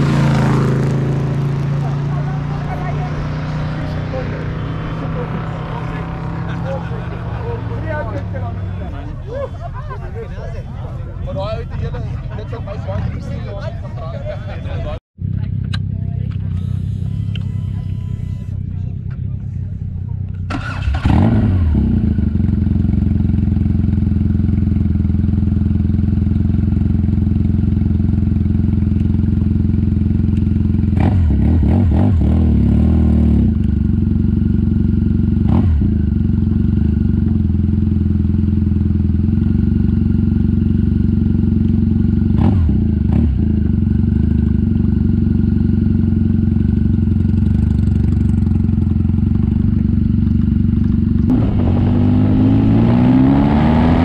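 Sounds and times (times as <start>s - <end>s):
motorcycle engine idling: 22.0s - 31.0s, 33.5s - 51.3s.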